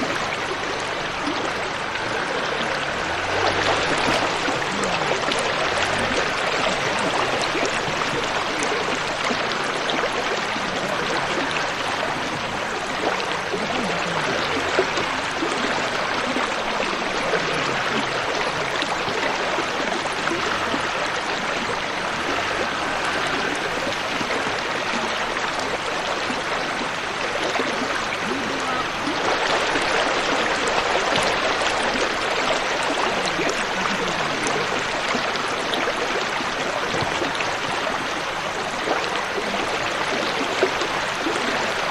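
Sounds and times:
river water splashing: 0:00.0 - 0:41.9
vehicle engine: 0:00.6 - 0:07.6.

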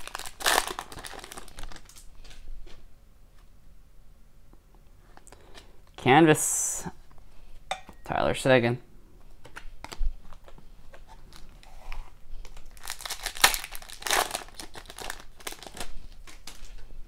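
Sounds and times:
foil wrapper tearing and crinkling: 0:00.0 - 0:02.3, 0:11.2 - 0:16.8.

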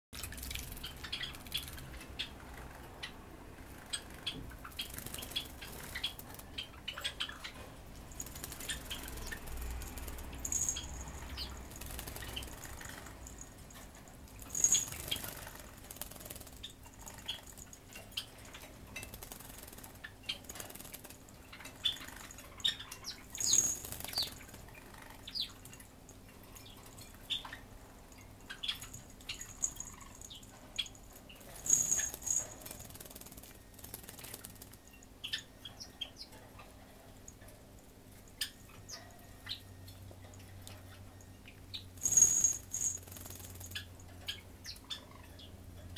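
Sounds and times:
bird wings fluttering: 0:08.2 - 0:10.8, 0:31.6 - 0:34.8, 0:42.0 - 0:43.8
small metal bell ringing: 0:10.4 - 0:11.8, 0:13.2 - 0:15.2, 0:23.4 - 0:23.9, 0:28.8 - 0:30.5, 0:31.6 - 0:32.8, 0:42.0 - 0:43.8.

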